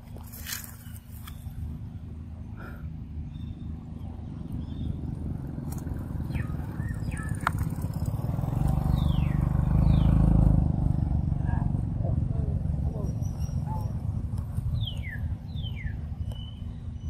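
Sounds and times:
vehicle engine rumble: 0.0 - 17.0
bird chirps: 3.0 - 10.4, 12.9 - 17.0.

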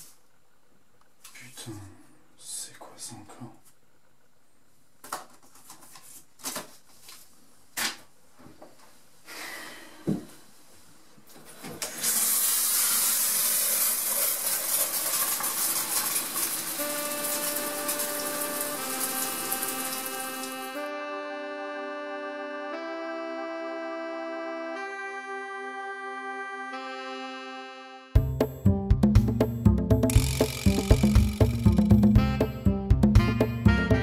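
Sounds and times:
shower water spray: 12.0 - 20.8
organ-like music chords: 16.7 - 34.0.

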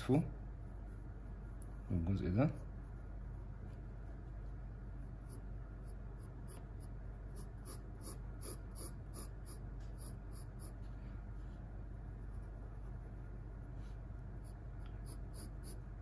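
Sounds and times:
pencil scratching on paper: 4.9 - 10.9, 12.1 - 16.0.

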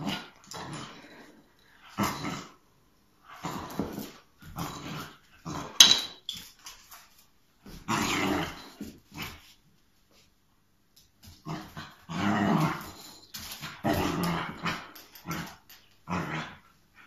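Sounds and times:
puppy growling: 11.5 - 16.7.

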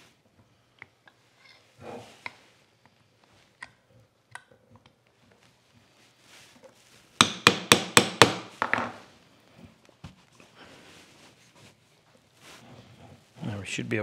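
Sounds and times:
hammer tapping a punch: 7.2 - 8.5.

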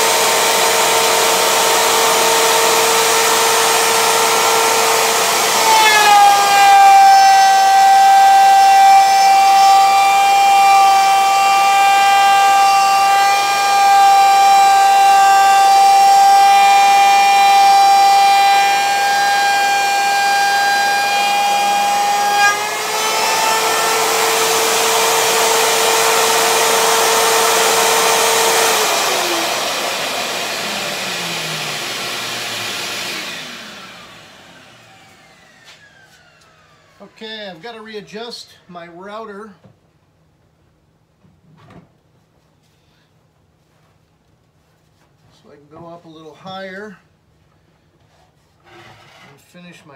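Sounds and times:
router cutting wood hiss: 0.0 - 37.4
router whining: 0.0 - 37.6.

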